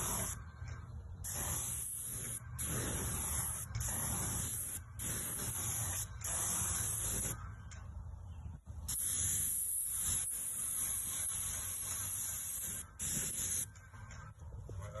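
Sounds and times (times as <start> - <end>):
paint sprayer hissing: 0.0 - 0.4, 1.2 - 7.4, 8.9 - 14.2.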